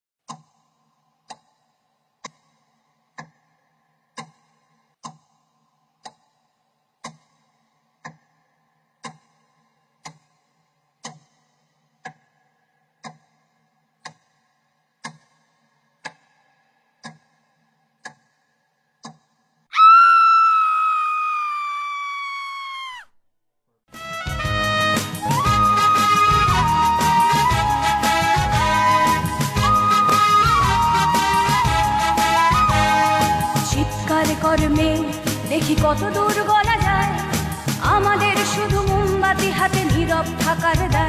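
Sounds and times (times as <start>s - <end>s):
clock ticking: 2.2s - 5.4s, 7.0s - 10.4s, 11.0s - 18.4s.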